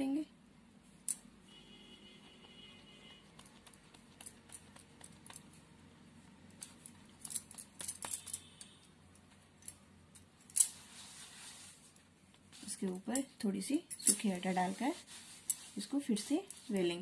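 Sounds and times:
small metallic clinks: 6.5 - 10.8, 13.1 - 14.4.

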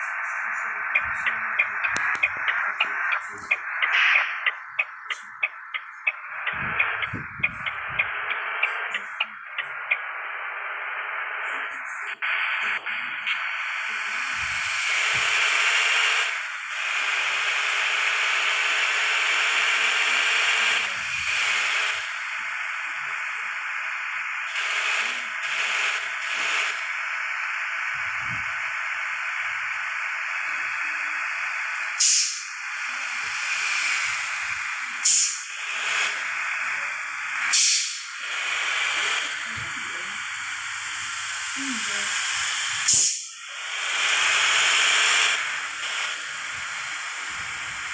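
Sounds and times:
wind and bus road noise: 6.5 - 8.1.

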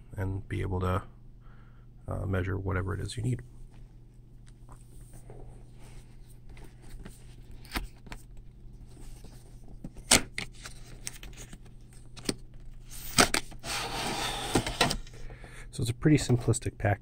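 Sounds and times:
low steady hum: 0.0 - 17.0
cardboard rubbing scrape: 13.6 - 14.9.

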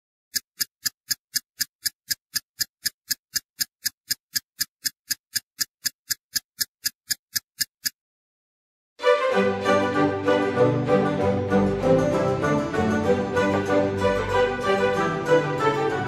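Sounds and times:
steady clock-like ticking: 0.3 - 8.0.

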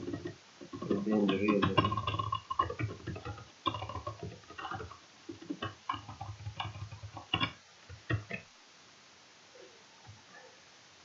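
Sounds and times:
computer keyboard typing: 0.0 - 8.4.

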